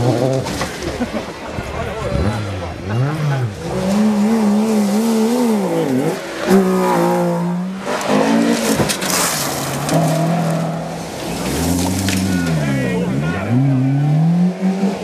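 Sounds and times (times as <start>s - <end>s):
rally car engines revving: 0.0s - 15.0s
gravel spraying from tyres: 7.8s - 12.4s.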